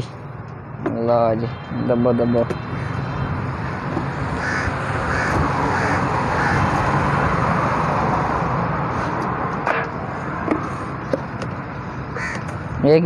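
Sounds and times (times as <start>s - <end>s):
crows cawing: 2.6s - 7.0s, 11.9s - 12.7s.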